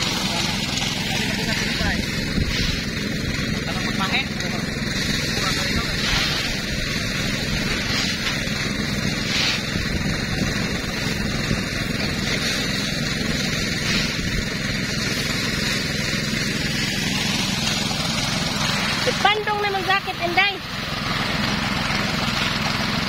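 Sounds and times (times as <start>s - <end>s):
small petrol engine running: 0.0s - 23.0s.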